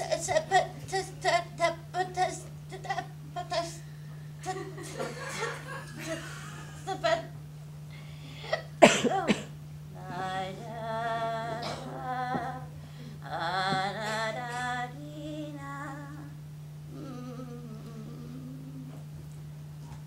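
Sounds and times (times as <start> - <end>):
woman singing with vibrato: 0.0 - 5.0, 10.0 - 19.0
low electrical hum: 0.0 - 20.0.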